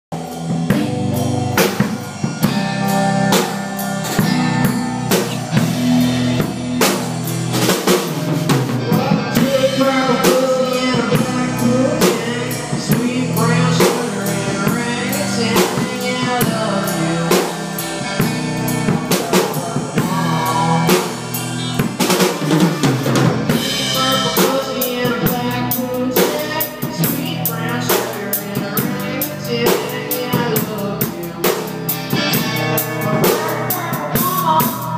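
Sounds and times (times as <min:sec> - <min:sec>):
drum kit hits: 0:00.1 - 0:16.6
electric guitar: 0:00.1 - 0:34.9
live band playing: 0:00.1 - 0:34.9.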